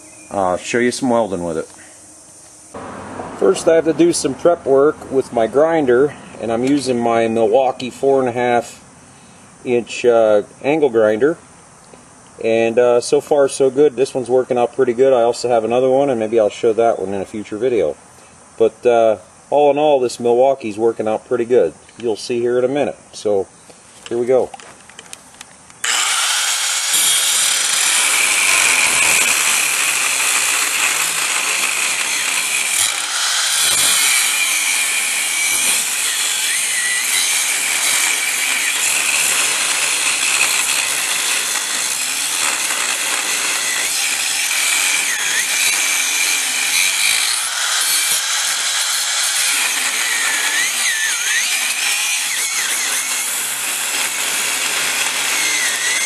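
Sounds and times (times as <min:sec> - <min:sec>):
angle grinder grinding steel: 0:25.8 - 0:56.0.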